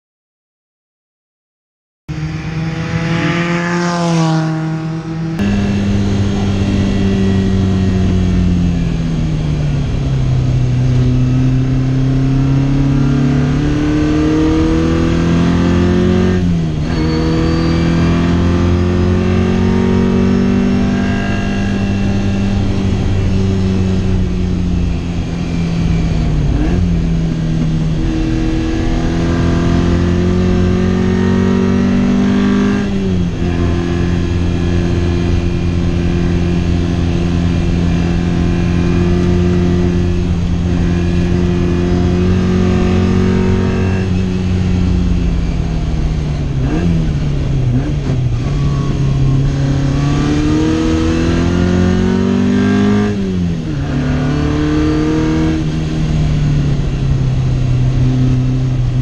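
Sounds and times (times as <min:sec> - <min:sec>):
race car passing by: 0:02.1 - 0:07.9
engine revving through gear changes: 0:02.1 - 0:59.0.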